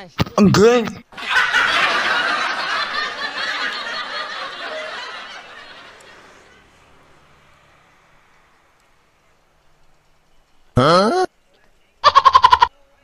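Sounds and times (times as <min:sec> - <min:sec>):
people laughing: 0:00.4 - 0:08.8.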